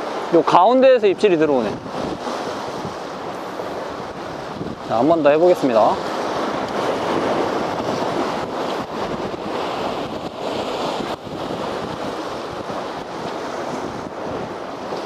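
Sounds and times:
waves breaking on rocks: 0:00.0 - 0:15.0
wind buffeting microphone: 0:01.0 - 0:15.0.

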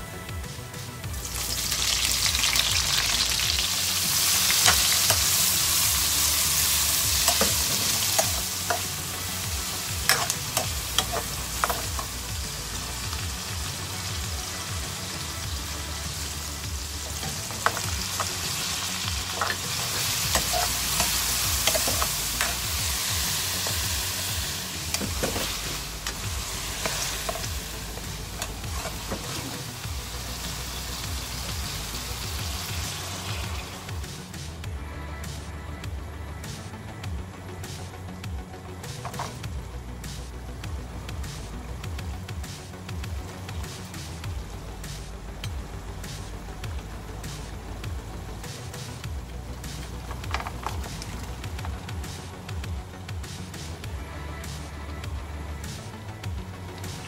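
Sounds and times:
onions sizzling in hot oil: 0:01.1 - 0:34.0
spatula clicking and scraping pan: 0:07.2 - 0:09.0, 0:10.0 - 0:12.2, 0:19.3 - 0:23.9.

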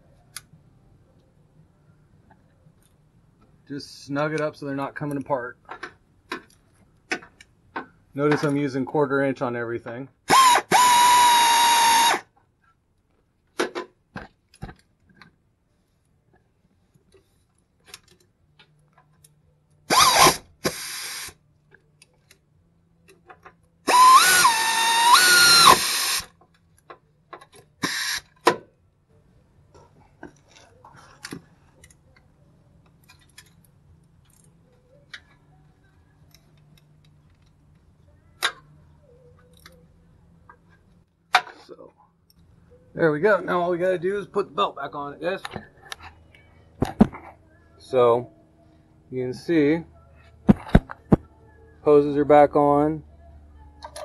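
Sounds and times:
power drill motor whine: 0:10.3 - 0:12.2, 0:19.9 - 0:21.3, 0:23.9 - 0:26.3.

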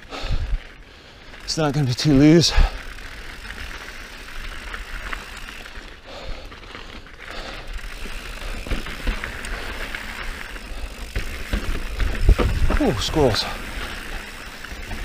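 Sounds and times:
bike rattling over bumps: 0:00.0 - 0:15.0
bike tyres on dirt: 0:00.0 - 0:15.0
wind rumble on microphone: 0:12.0 - 0:13.0.

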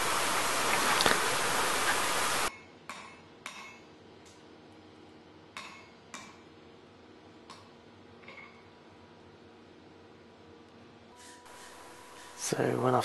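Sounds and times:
loud rushing hiss: 0:00.0 - 0:02.5.

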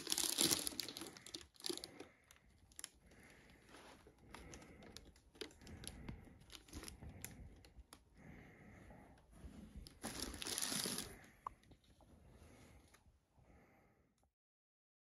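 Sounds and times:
paper and cardboard crinkling: 0:00.0 - 0:02.1, 0:09.8 - 0:11.2.

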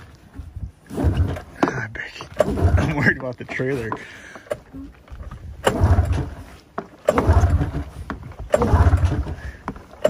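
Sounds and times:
snowmobile engine running: 0:00.8 - 0:01.8, 0:02.4 - 0:03.2, 0:05.4 - 0:09.7
snowmobile recoil pulls cranking: 0:00.8 - 0:03.2, 0:03.9 - 0:10.0.

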